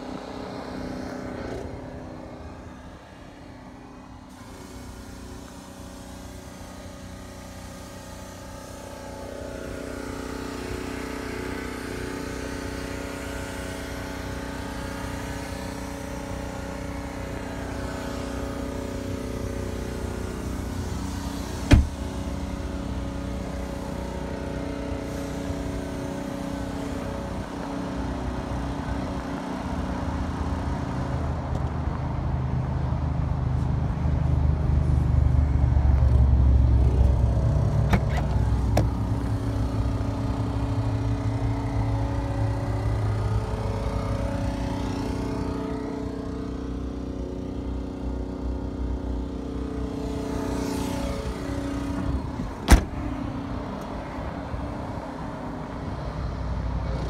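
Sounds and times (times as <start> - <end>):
diesel engine idling: 1.8 - 56.7
car door slamming: 21.6 - 22.2, 37.8 - 39.0, 52.6 - 53.1.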